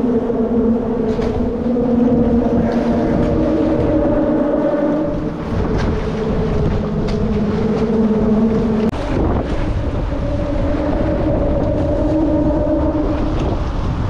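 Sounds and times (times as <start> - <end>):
engine drone: 0.0 - 14.0
wind across microphone: 0.0 - 14.0.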